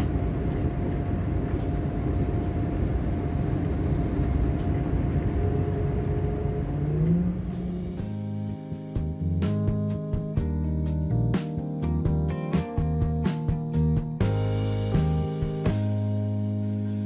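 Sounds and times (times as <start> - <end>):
thin steady whine: 0.0 - 8.0
train diesel engine rumble: 0.0 - 11.3
rising tone: 5.0 - 8.5.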